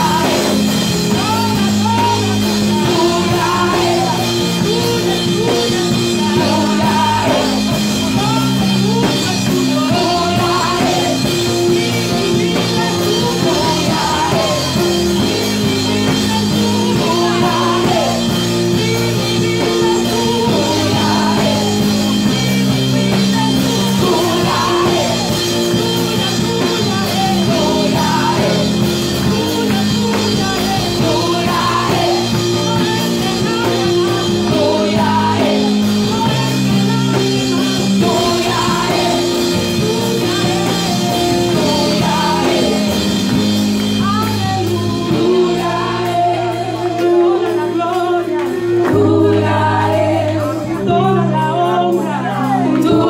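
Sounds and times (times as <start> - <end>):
woman singing gospel song: 0.0 - 53.0.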